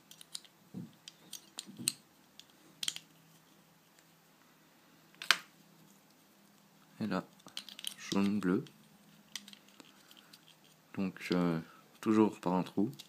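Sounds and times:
plastic cube pieces clicking: 0.1 - 3.0.

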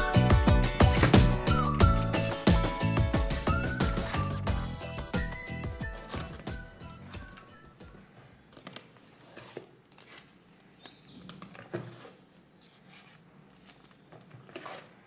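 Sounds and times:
cardboard packaging rustling: 5.9 - 10.4.

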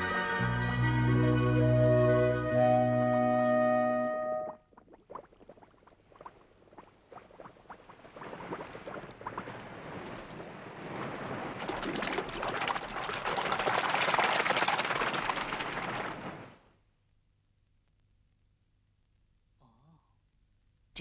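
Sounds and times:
cartoon bubbles popping: 4.4 - 9.5, 11.6 - 15.4.

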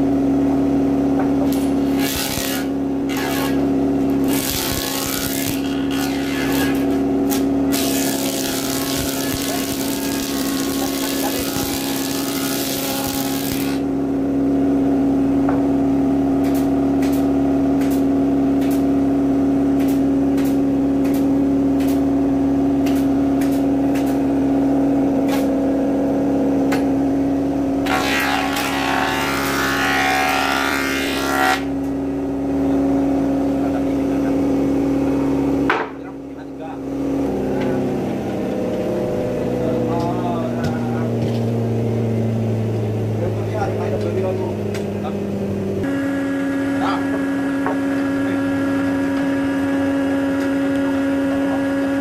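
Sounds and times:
cutterhead planing wood: 0.0 - 14.0, 27.7 - 36.1, 36.8 - 52.0
jointer motor hum: 0.4 - 35.7, 36.8 - 52.0.

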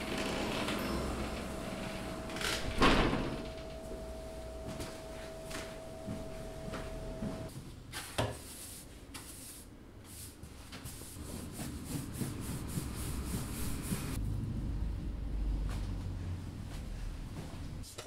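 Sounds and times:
broom sweeping wooden floor: 0.1 - 14.2.

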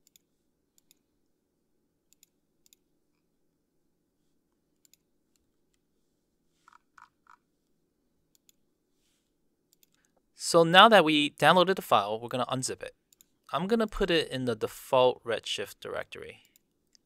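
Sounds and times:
faint computer mouse clicks: 9.7 - 10.2.

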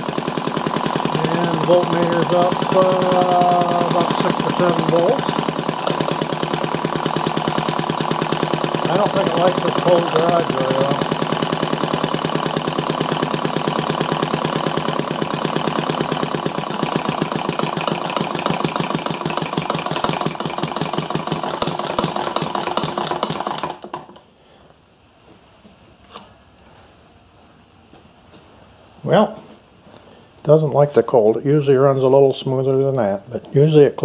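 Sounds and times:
small gas engine running: 0.0 - 24.4.

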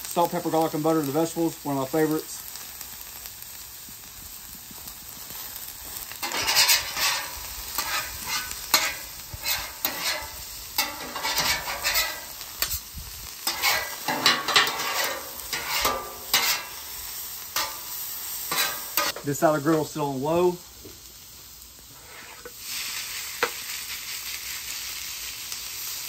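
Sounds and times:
vegetables sizzling on griddle: 0.0 - 26.0
metal spatulas scraping: 6.2 - 12.8, 13.4 - 16.8, 17.6 - 19.2, 22.0 - 22.5.

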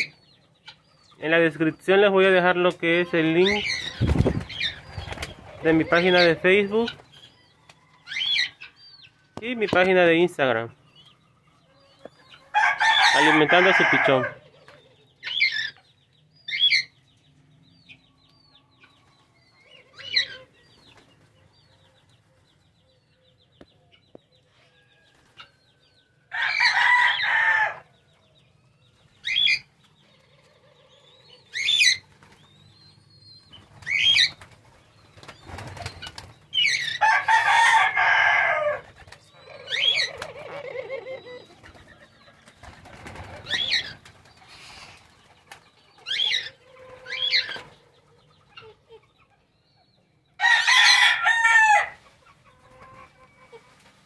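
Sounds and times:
wings flapping: 3.7 - 5.8, 33.6 - 36.6, 38.8 - 46.1
rooster crowing: 12.5 - 14.4, 26.3 - 27.9, 37.0 - 38.8, 50.4 - 52.0
short sharp bird calls: 44.4 - 45.3.

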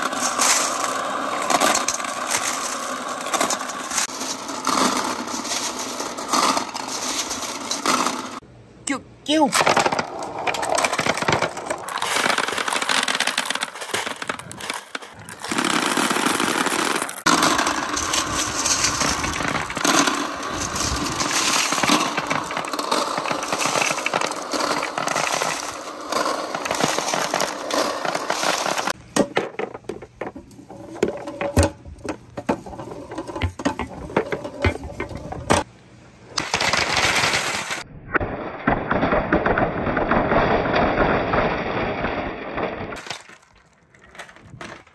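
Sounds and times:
glass marbles clattering on wood: 9.6 - 30.4.

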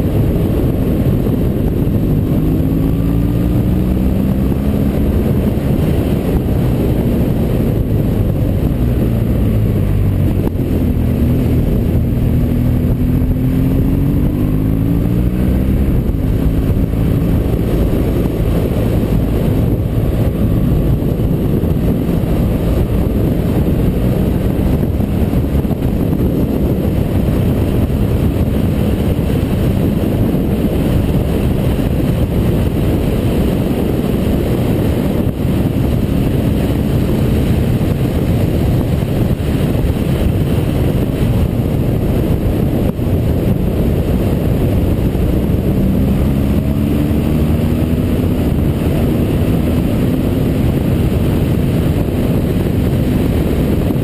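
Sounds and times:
motorcycle engine accelerating: 0.0 - 54.0
wind noise on microphone: 0.0 - 54.0.

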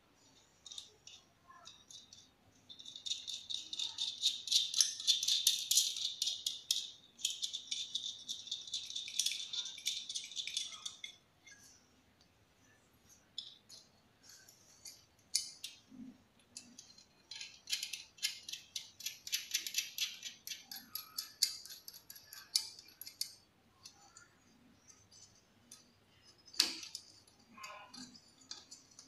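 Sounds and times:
metallic clicks of nut turning: 13.4 - 24.0.

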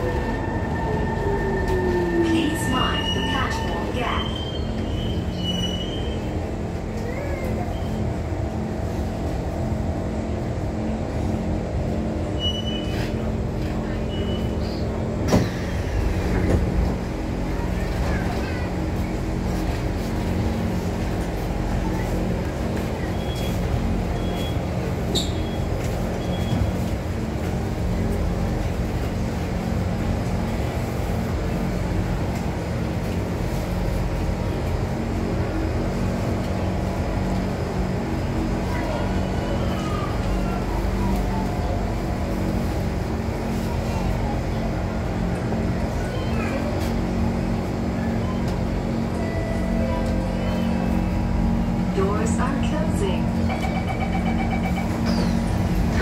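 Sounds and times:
station noise: 0.0 - 5.3, 48.4 - 56.0
train car rumble and hum: 0.0 - 56.0
high beep: 53.4 - 55.2.

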